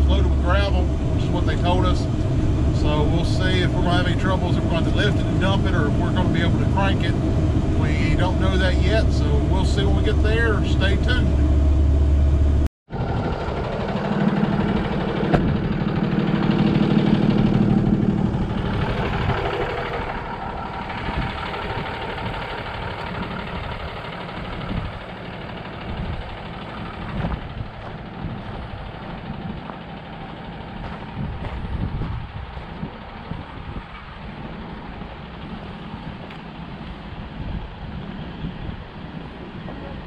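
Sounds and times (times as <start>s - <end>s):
diesel truck engine running: 0.0s - 40.0s.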